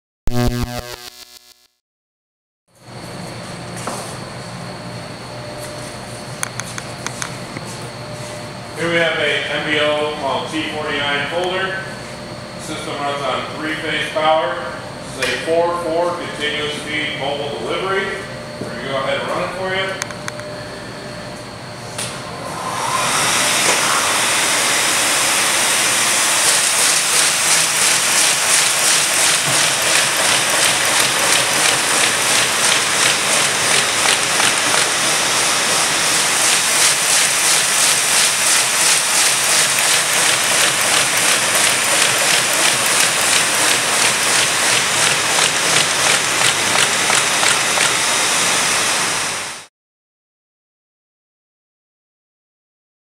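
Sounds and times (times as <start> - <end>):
paper folder machine clattering: 26.8 - 35.2, 36.3 - 48.0.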